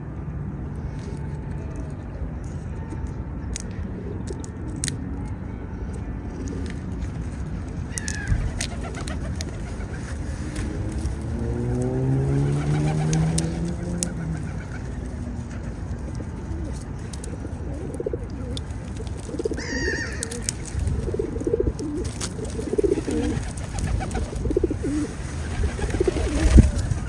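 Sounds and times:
pigeons cooing: 7.8 - 27.0.

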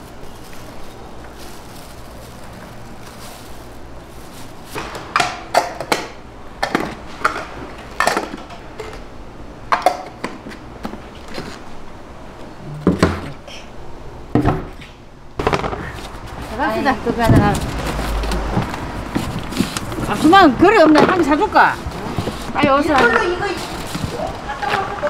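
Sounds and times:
steady low hum: 0.0 - 24.6.

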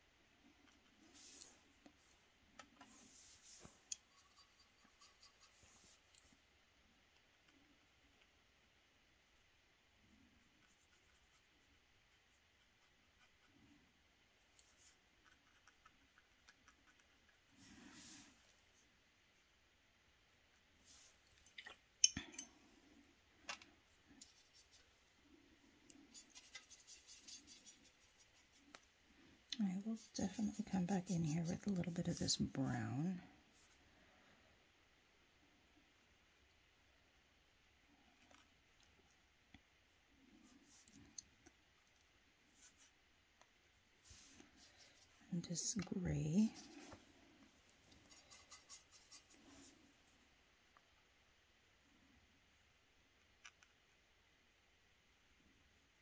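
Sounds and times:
faint ticking and scratching: 0.3 - 8.5, 9.9 - 19.6, 20.3 - 33.8, 37.9 - 51.0
brush dabbing paint on paper: 0.5 - 2.2, 2.8 - 6.4, 10.4 - 19.5, 20.4 - 21.2, 24.0 - 25.2, 25.8 - 29.0, 29.6 - 33.8, 42.4 - 47.1, 47.8 - 49.8.

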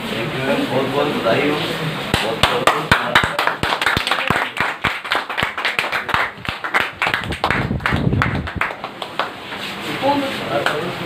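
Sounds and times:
crowd clapping: 2.1 - 9.7, 10.6 - 11.0.

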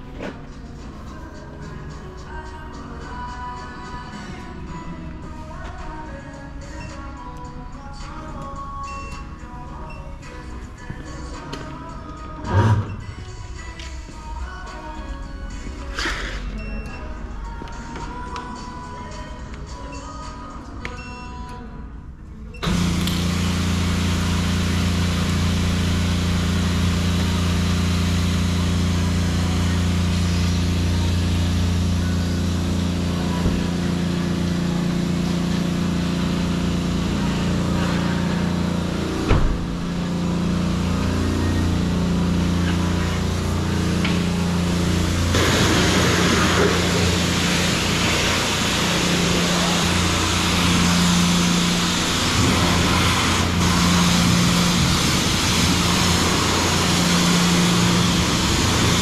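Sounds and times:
low hum: 22.6 - 59.0
water jet spraying on car: 22.6 - 59.0.

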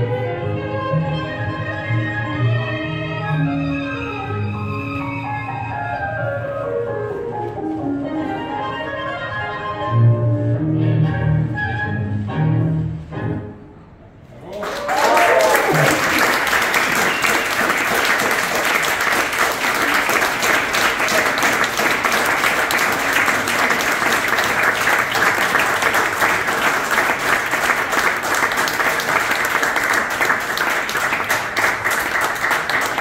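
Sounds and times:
audience applauding: 14.4 - 33.0.

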